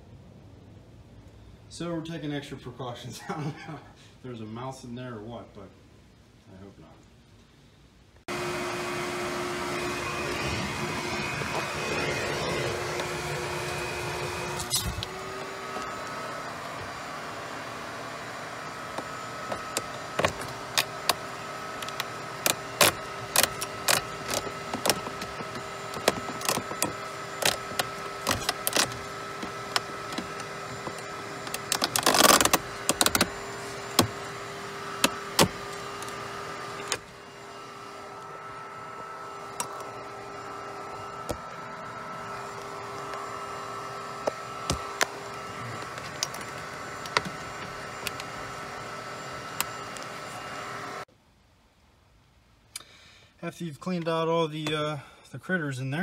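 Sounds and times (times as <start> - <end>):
vacuum cleaner running: 8.3 - 51.1.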